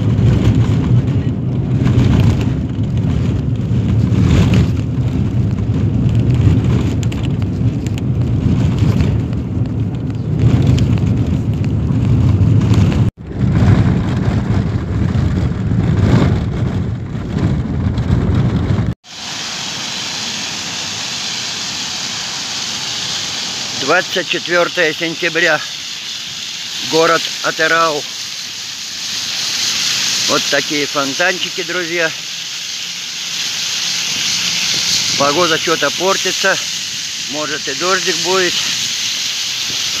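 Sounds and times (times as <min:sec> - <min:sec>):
car road and engine rumble: 0:00.0 - 0:40.0
fountain jets splashing: 0:19.0 - 0:40.0.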